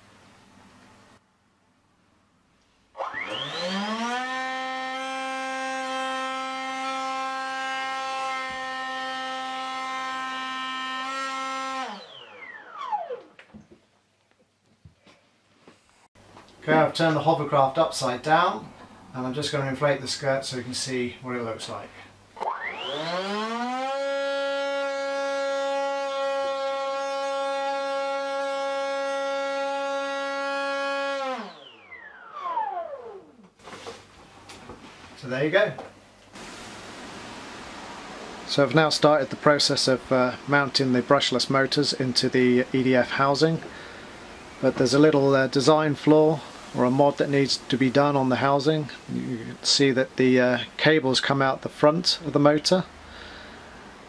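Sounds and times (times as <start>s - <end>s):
electric ducted fan whine: 16.2s - 54.0s.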